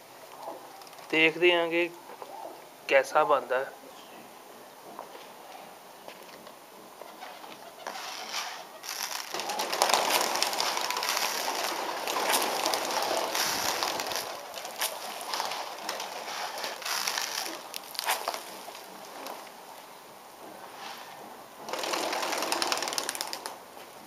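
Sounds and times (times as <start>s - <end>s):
pigeons pecking grain: 7.0s - 19.6s, 20.6s - 23.6s
pigeons flapping wings: 7.8s - 19.4s, 21.7s - 23.6s.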